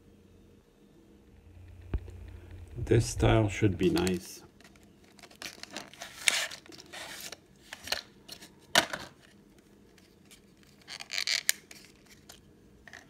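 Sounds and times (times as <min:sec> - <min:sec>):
card sleeve rustling: 0:03.8 - 0:08.5
plastic tray crinkling: 0:03.8 - 0:09.3.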